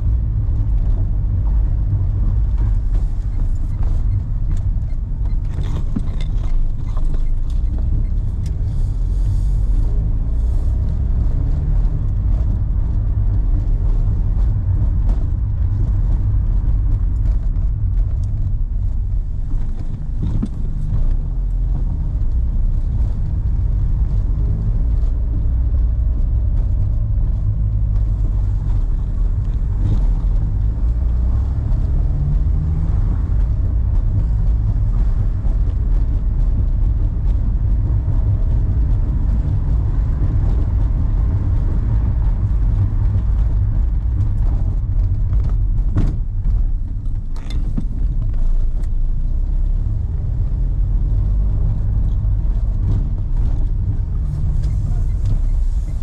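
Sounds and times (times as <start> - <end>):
car engine rumble: 0.0 - 56.0
road noise: 0.0 - 56.0.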